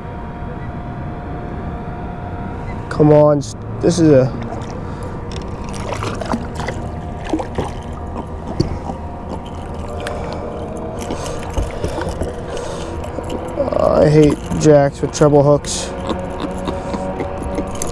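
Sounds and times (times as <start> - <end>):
steady low hum: 0.0 - 17.9
fish splashing in water: 4.3 - 14.6
fishing gear knocking on hull: 5.3 - 14.6.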